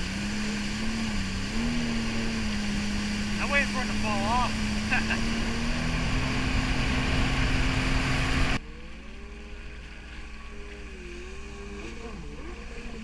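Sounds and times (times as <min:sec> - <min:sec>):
wind and water rushing: 0:00.0 - 0:08.6
jet ski engine: 0:00.0 - 0:13.0.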